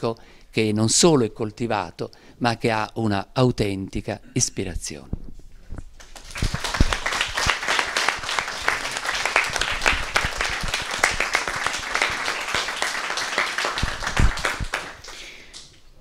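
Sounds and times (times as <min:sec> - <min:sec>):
audience applause: 0:06.0 - 0:15.6.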